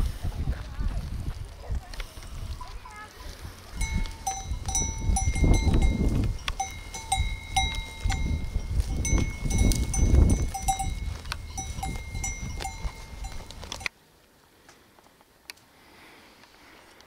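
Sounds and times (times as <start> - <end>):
sheep bells clanking: 3.8 - 13.9.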